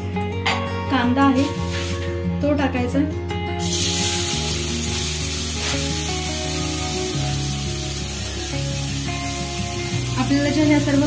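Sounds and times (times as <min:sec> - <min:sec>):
soft background music: 0:00.0 - 0:11.0
onion sizzling in hot oil: 0:01.7 - 0:02.1, 0:03.6 - 0:11.0.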